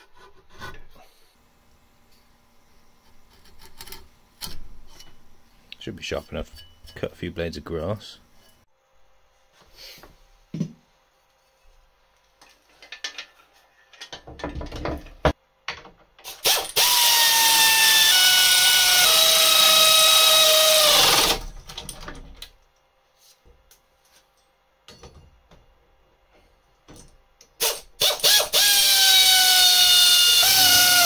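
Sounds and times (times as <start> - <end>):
pneumatic air ratchet whine: 16.2 - 21.5, 27.6 - 31.0.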